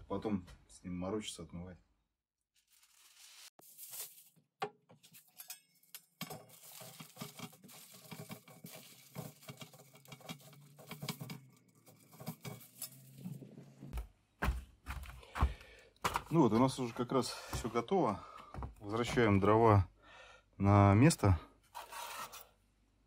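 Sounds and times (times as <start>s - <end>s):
aluminium foil crinkling: 2.6s - 4.4s, 5.0s - 13.3s.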